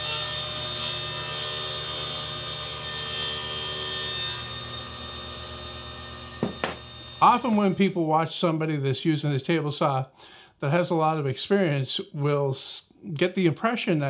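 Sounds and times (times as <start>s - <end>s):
table saw ripping board: 6.3s - 7.2s.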